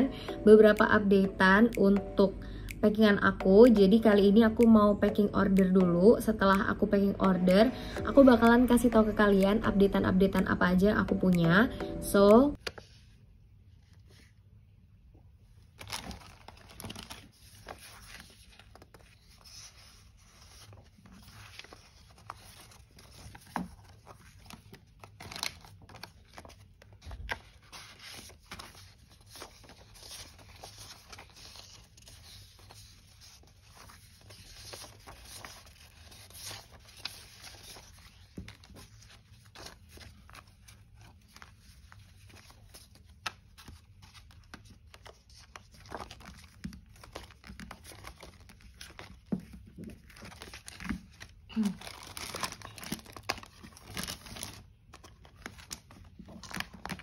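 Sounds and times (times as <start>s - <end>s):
paper and plastic crinkling: 15.6s - 57.0s.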